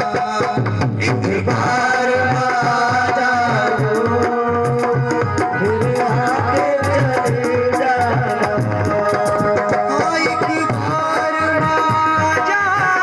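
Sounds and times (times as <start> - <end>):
hand drum rhythm: 0.0 - 13.0.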